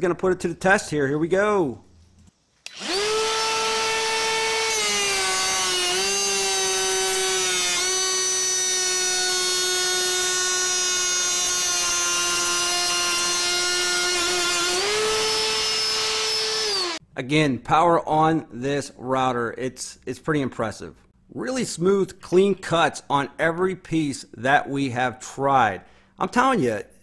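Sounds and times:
router whining while cutting wood: 2.7s - 17.0s.

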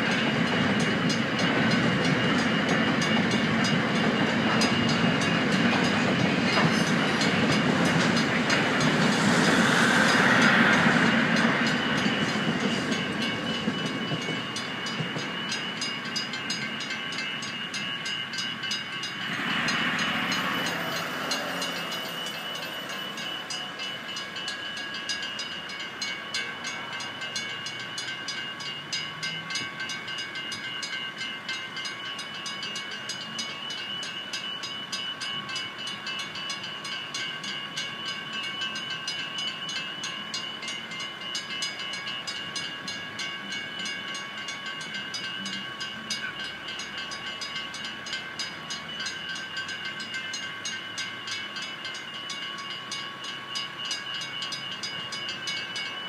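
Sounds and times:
train wagons clattering: 0.0s - 31.0s
crossing warning bells ringing: 0.0s - 56.0s
brief whoosh: 8.5s - 12.4s.

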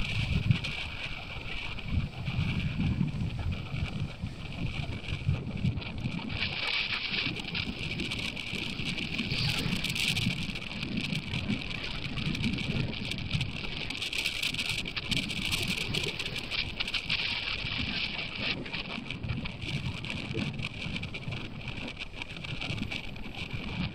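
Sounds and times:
surf breaking on beach: 0.0s - 23.9s
wind gusting on microphone: 0.0s - 23.9s.

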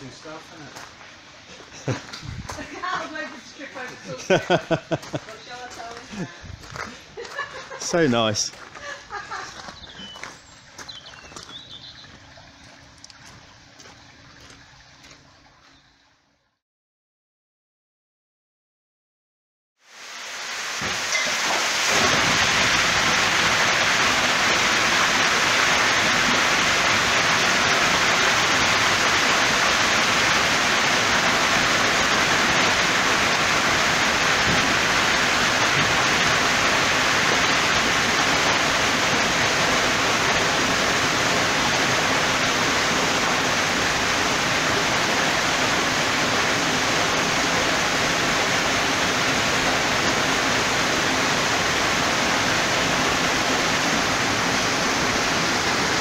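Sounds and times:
water pouring over a gate: 7.2s - 15.6s, 19.9s - 56.0s.

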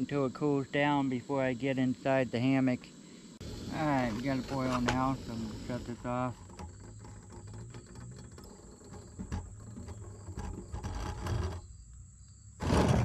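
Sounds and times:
camping stove burning: 0.0s - 12.7s
clicks and metal scraping: 3.4s - 13.0s.

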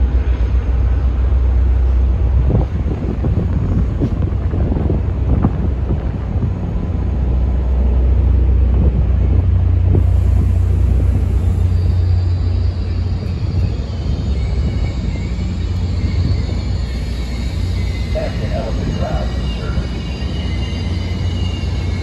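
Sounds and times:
diesel train rumbling: 0.0s - 22.0s
wind buffeting microphone: 0.0s - 22.0s
faint high squeal: 10.4s - 22.0s.

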